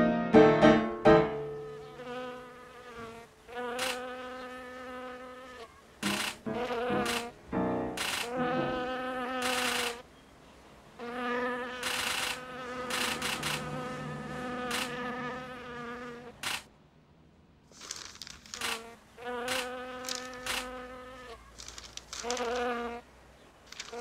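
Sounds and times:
sharp clicks: 6.0s - 7.3s, 8.0s - 8.4s, 11.8s - 13.8s, 16.4s - 16.7s, 19.5s - 20.7s, 21.6s - 22.7s, 23.7s - 24.0s
steady buzzing drone: 11.8s - 16.7s.

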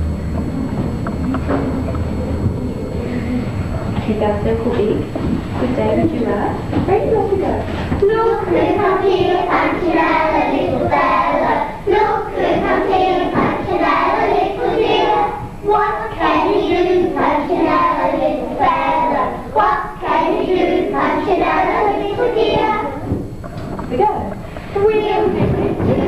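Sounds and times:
children singing in unison: 8.4s - 23.0s.

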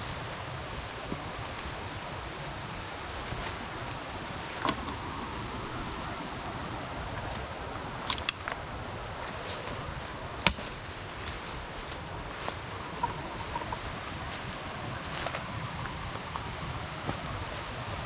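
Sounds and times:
footsteps rustling on trail: 0.0s - 18.0s
sharp clicks underfoot: 7.3s - 8.6s.

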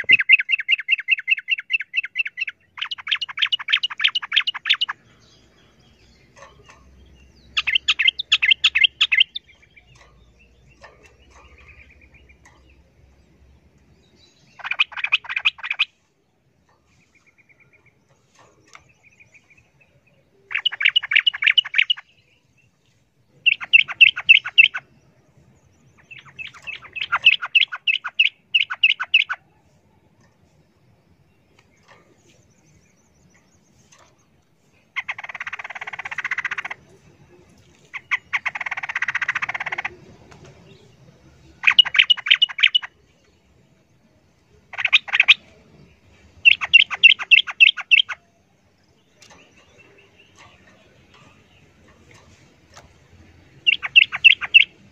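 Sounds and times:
bird chattering: 0.0s - 12.8s, 14.4s - 16.0s, 20.5s - 22.2s, 23.4s - 24.9s, 25.8s - 29.5s, 34.8s - 37.1s, 37.8s - 40.1s, 41.6s - 43.0s, 44.5s - 48.3s, 49.4s - 54.9s.

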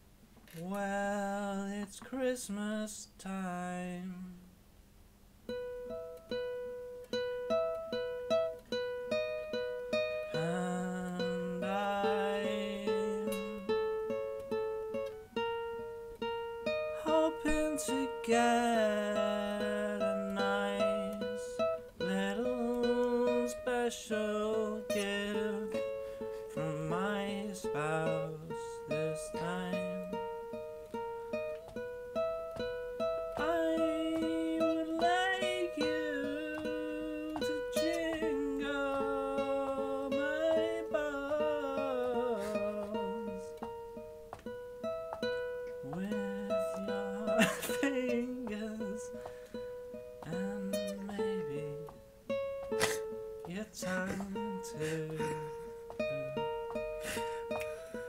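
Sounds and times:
acoustic guitar chords: 0.0s - 4.8s, 5.4s - 58.0s
man singing: 0.5s - 4.5s, 10.3s - 13.8s, 17.0s - 30.3s, 33.4s - 43.7s, 45.8s - 49.3s, 50.2s - 52.0s, 52.8s - 58.0s.

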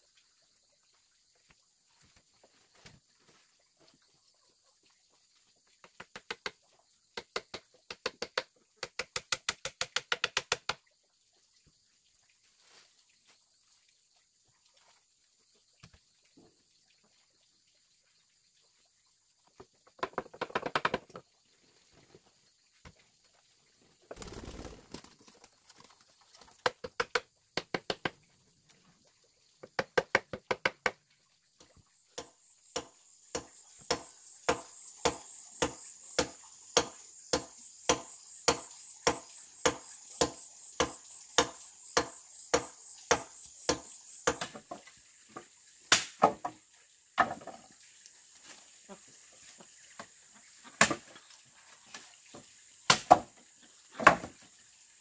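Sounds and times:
hand tool striking wood: 7.2s - 10.8s, 29.6s - 31.0s, 32.2s - 44.8s, 45.9s - 46.6s, 52.9s - 53.3s.

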